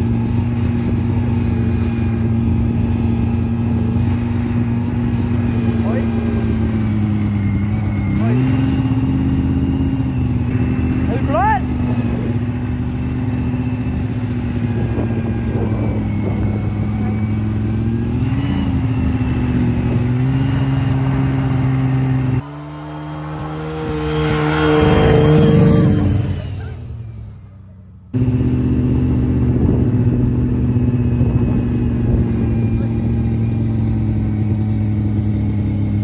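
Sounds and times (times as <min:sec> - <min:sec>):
snowmobile engine running: 0:00.0 - 0:27.5, 0:28.1 - 0:36.0.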